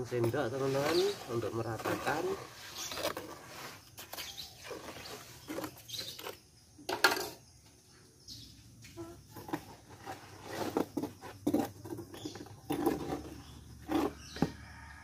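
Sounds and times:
trowel scraping wet mortar: 0.0 - 6.5, 9.4 - 14.7.

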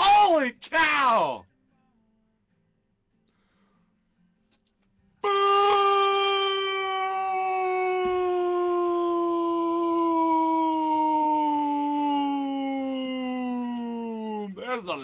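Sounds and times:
long howl: 5.2 - 14.6.

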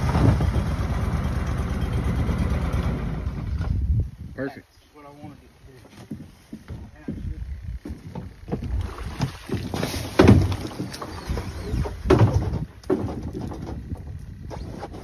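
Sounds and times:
metal boat hull scraping: 9.5 - 15.0.

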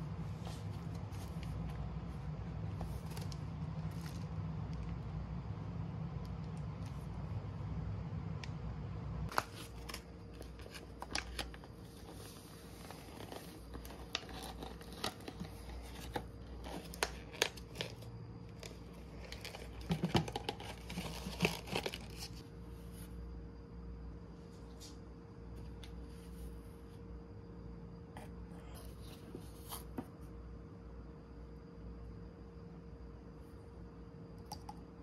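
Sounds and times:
plastic packaging crinkling and tearing: 9.3 - 22.4.

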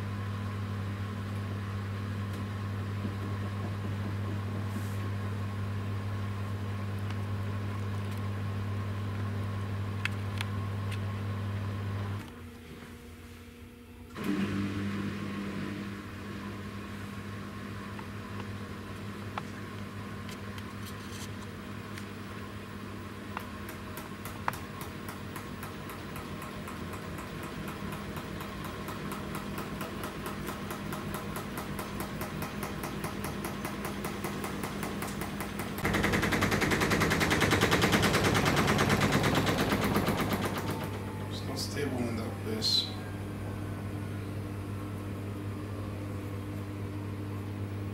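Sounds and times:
washing machine motor hum: 0.0 - 47.9
washing machine knocking: 3.0 - 4.6, 23.7 - 41.1.

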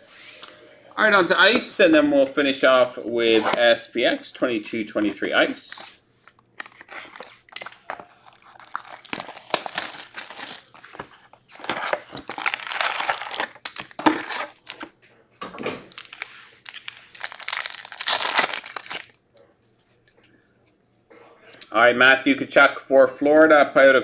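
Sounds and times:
foil packs crinkling: 6.6 - 14.9, 15.9 - 19.2
foil pack ripping open: 6.8 - 10.8, 11.6 - 14.8, 15.9 - 19.2.

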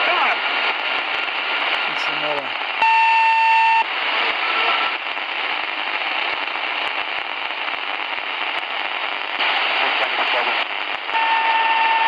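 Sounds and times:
radio static hiss and crackle: 0.0 - 12.0
steady beep: 2.8 - 3.8.

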